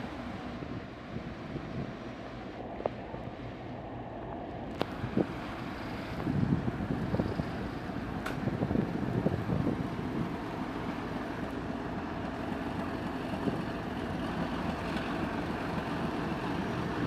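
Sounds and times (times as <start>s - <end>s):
diesel locomotive engine rumble: 0.0s - 17.0s
wind on microphone: 4.8s - 10.4s.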